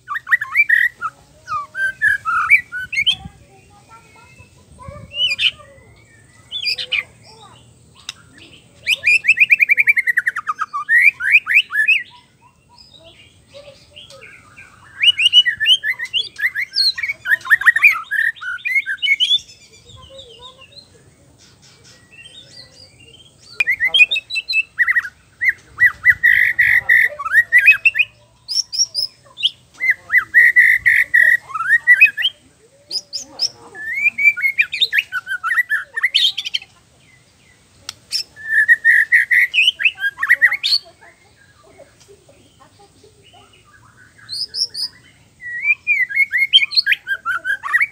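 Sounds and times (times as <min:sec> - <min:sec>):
bird singing whistled trills: 0:00.0 - 0:41.7, 0:42.6 - 0:47.9.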